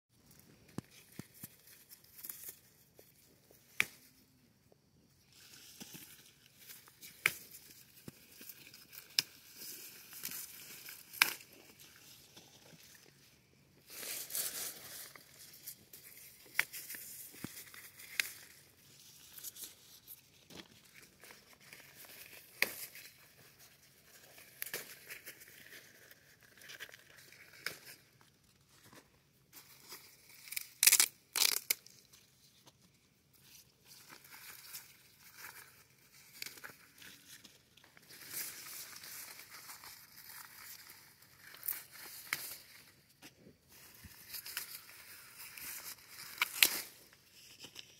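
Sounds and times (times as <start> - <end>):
stems snapping: 3.7 - 4.1, 7.0 - 11.5, 16.2 - 18.5, 22.5 - 23.0, 30.4 - 32.0, 45.6 - 47.0
leaves and husks rustling: 5.3 - 28.0, 33.4 - 43.0, 43.7 - 47.9.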